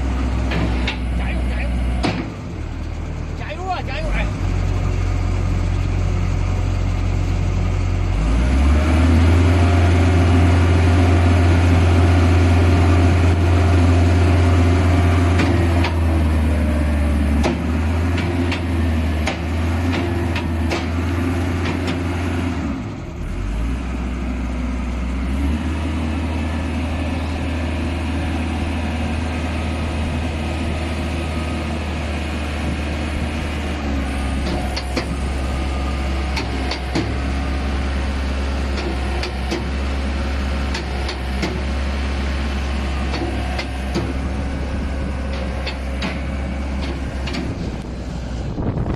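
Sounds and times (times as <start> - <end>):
engine running steadily: 0.0 - 48.9.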